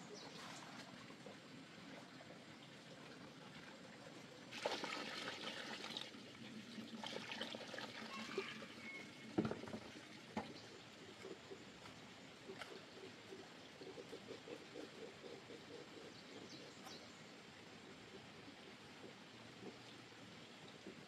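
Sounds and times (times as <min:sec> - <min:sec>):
water splashing and trickling: 0:00.0 - 0:13.0.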